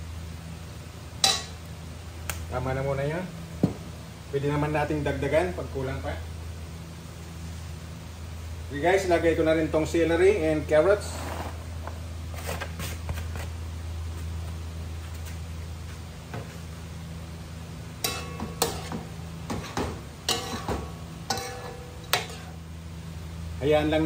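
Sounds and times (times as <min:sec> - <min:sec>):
vegetables sizzling in a pot: 0:17.5 - 0:23.7.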